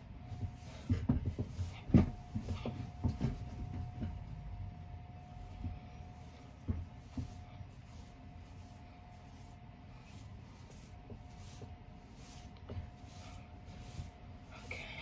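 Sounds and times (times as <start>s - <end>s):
faint steady hum: 0.0s - 15.0s
rustling of wig hair: 0.0s - 15.0s
soft thumps: 0.2s - 7.6s.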